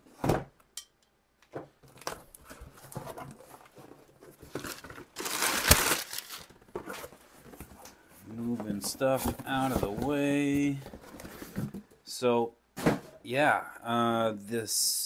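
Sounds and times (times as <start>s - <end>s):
packing paper rustling: 1.9s - 7.8s.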